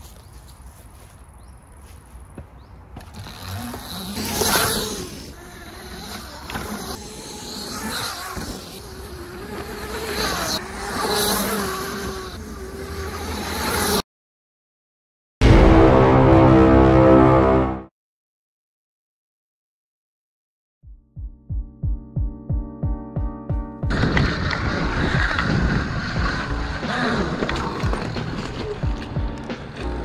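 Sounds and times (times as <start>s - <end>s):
tyre noise: 0.0s - 14.0s, 23.9s - 30.0s
electric motor whine: 3.0s - 13.9s
wind noise: 23.8s - 29.8s.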